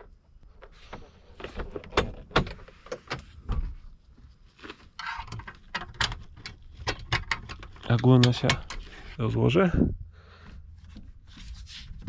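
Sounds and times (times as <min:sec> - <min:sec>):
clicks knocks and rattles of fittings: 0:05.0 - 0:09.2.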